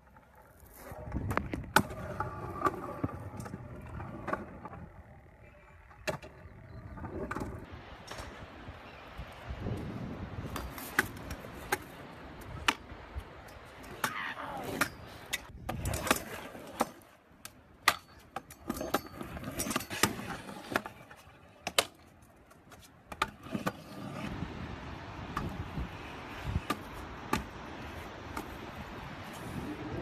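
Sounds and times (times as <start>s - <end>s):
scooter wheels rumbling on concrete: 0.0s - 8.3s, 13.7s - 17.2s, 17.8s - 30.0s.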